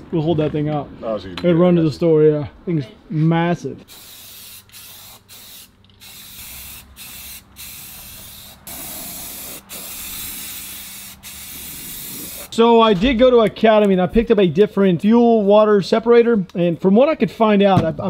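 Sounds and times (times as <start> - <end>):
spray can hissing: 3.8 - 12.5.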